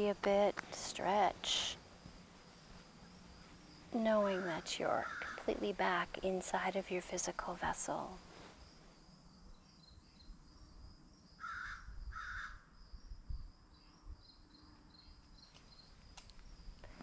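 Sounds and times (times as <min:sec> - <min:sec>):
insects trilling: 0:00.0 - 0:13.1
crow cawing: 0:04.4 - 0:05.4, 0:11.4 - 0:12.6.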